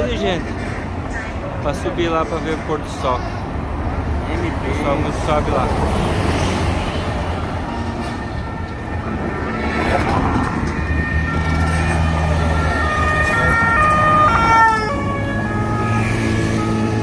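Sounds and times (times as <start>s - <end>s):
street traffic: 0.0s - 17.0s
two-tone siren: 7.8s - 17.0s.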